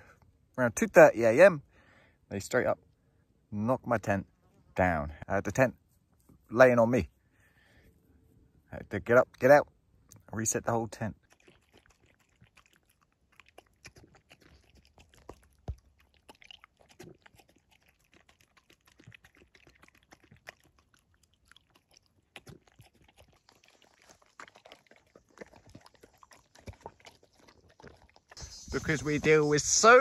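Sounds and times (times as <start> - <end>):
dog crunching and chewing food: 10.9 - 28.8.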